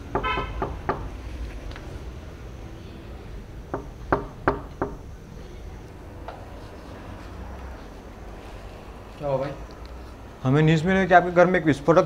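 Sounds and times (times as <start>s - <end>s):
knuckles knocking on wooden door: 0.1s - 1.1s, 3.7s - 5.0s.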